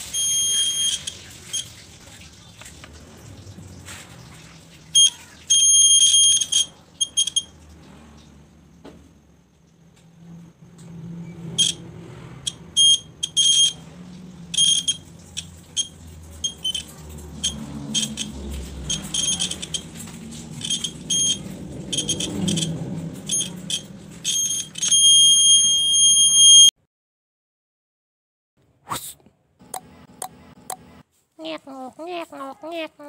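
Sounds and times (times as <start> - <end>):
high-pitched buzzer beeping: 0.0 - 1.1, 5.0 - 7.5, 12.5 - 13.8, 14.6 - 15.0, 18.9 - 19.8, 20.6 - 21.4, 23.3 - 26.7.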